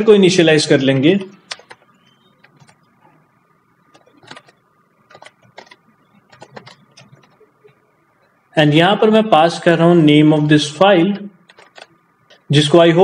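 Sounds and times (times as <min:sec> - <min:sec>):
keyboard keystroke clicks: 0:03.9 - 0:07.4.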